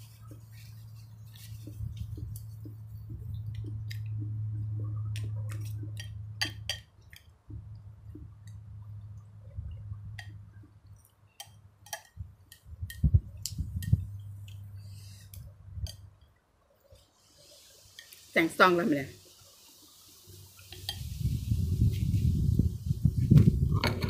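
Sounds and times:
steady low hum: 0.0s - 11.0s, 11.7s - 16.2s.

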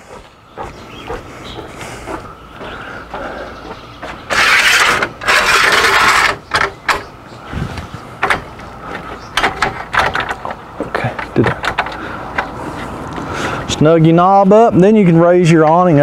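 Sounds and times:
metallic scraping rasps: 3.6s - 7.1s.

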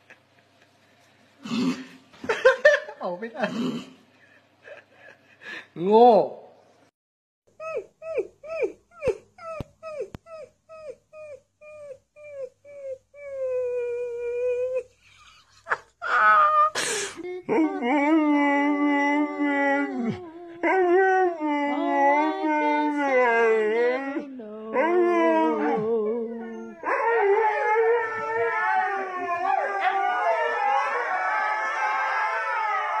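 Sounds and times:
dog howling low: 17.5s - 33.0s
puppy howl: 17.5s - 33.0s.

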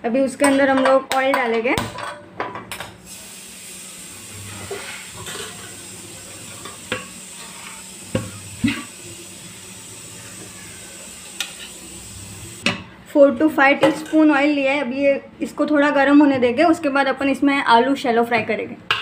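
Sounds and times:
utensils knocking against pans: 0.4s - 3.0s, 4.5s - 5.8s, 6.4s - 8.9s.

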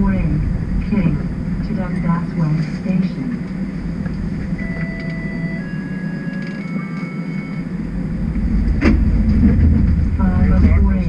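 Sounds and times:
streetcar equipment rumble: 0.0s - 11.0s
thin electrical whines: 3.6s - 9.4s.

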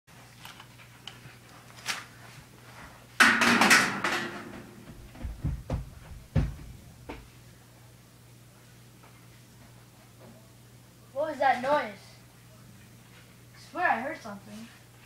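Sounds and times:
dull thumps: 3.4s - 7.3s.

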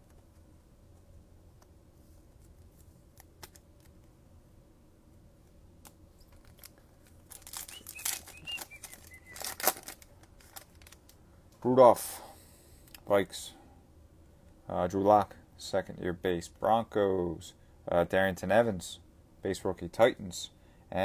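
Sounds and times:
wrapper tearing and crinkling: 6.3s - 11.2s.

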